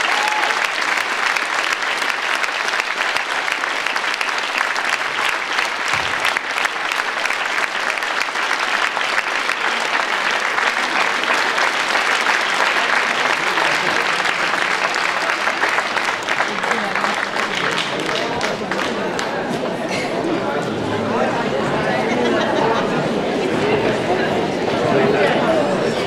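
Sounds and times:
audience applauding: 0:00.0 - 0:19.6.

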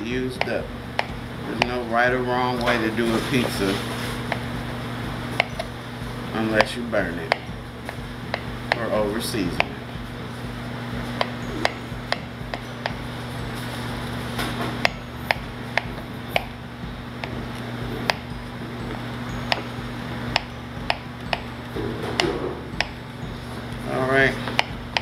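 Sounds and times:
steady low hum: 0:00.0 - 0:25.0
knife tapping cutting board: 0:00.4 - 0:01.9, 0:06.5 - 0:08.9, 0:09.5 - 0:09.8, 0:11.2 - 0:13.0, 0:18.0 - 0:18.3.

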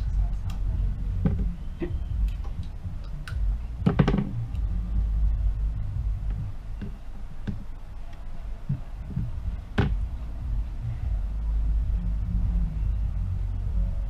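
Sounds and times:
steady low rumble: 0:00.0 - 0:14.0
hands tapping tape and tablet: 0:00.4 - 0:04.4.

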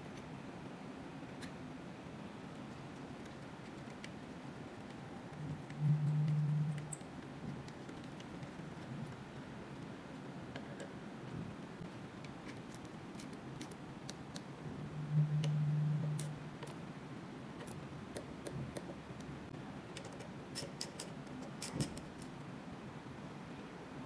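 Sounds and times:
brief low hum: 0:14.7 - 0:16.4.

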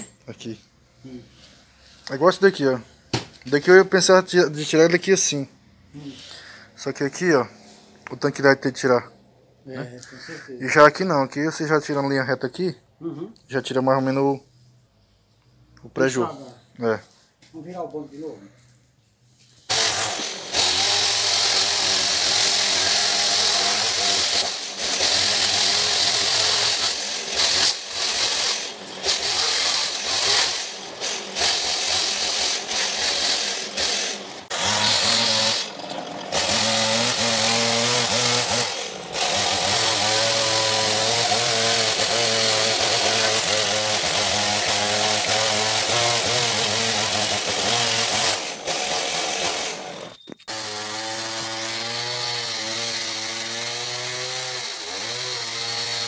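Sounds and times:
chainsaw cutting wood: 0:19.7 - 0:56.0.

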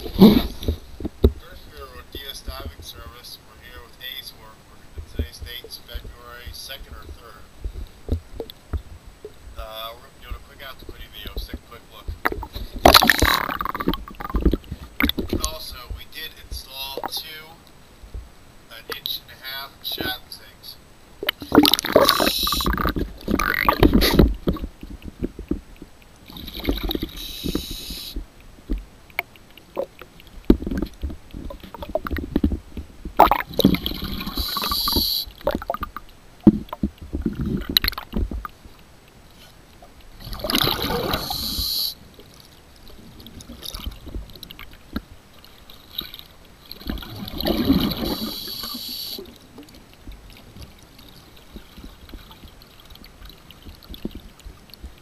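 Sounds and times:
bubbling exhaled air: 0:12.1 - 0:15.5, 0:21.3 - 0:25.4, 0:26.3 - 0:28.3, 0:33.2 - 0:38.0, 0:40.2 - 0:42.0, 0:46.8 - 0:49.4
regulator hissing inhalation: 0:22.0 - 0:22.8, 0:27.1 - 0:28.2, 0:34.2 - 0:35.4, 0:41.0 - 0:42.0, 0:48.0 - 0:49.3.

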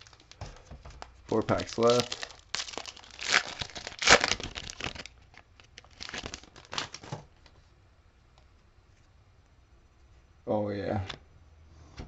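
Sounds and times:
card pack wrapper crinkling: 0:00.0 - 0:07.2.

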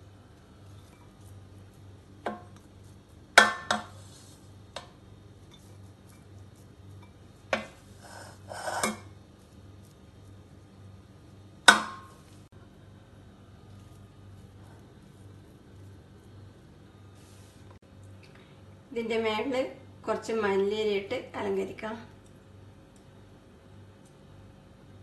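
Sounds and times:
spatula scrape: 0:03.8 - 0:04.6, 0:07.5 - 0:09.2.

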